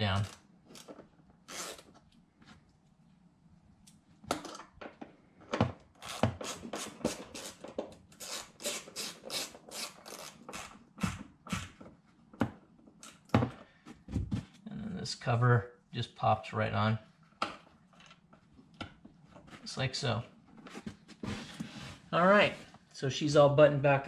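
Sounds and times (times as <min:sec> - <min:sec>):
ratchet wrench clicking: 0:01.5 - 0:01.8.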